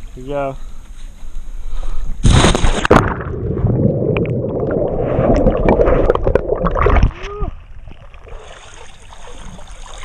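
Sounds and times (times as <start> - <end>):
person splashing into water: 2.2 - 7.4
muffled underwater bubbling: 2.9 - 8.4.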